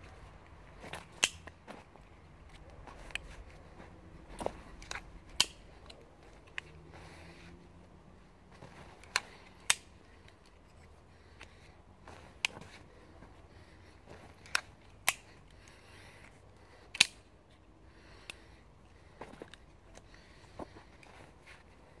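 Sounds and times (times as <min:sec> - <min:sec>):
knife clicking: 0:04.9 - 0:05.7.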